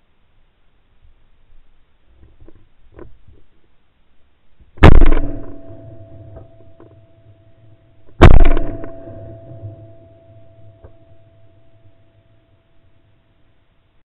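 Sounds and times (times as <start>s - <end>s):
shotgun shots: 4.8s - 6.4s, 8.2s - 9.7s.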